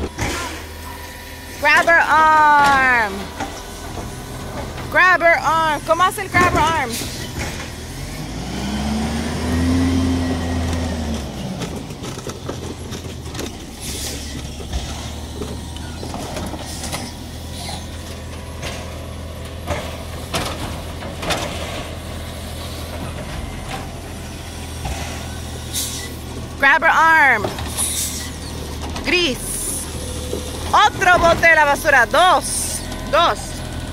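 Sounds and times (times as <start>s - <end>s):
garbage truck engine revving: 0.0s - 33.9s
knocks and clanks of bins: 6.2s - 7.8s, 10.6s - 24.0s, 27.4s - 29.5s, 30.2s - 31.9s.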